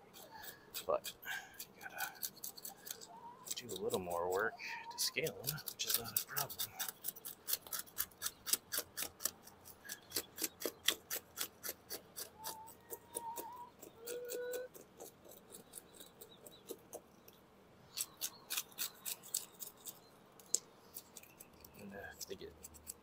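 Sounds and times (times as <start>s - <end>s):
knife scraping fish scales: 0.0s - 4.4s, 5.0s - 12.3s, 20.9s - 23.0s.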